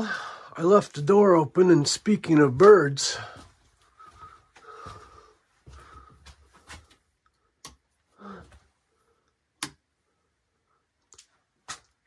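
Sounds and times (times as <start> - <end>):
faint footsteps and shuffling: 0.2 - 7.2.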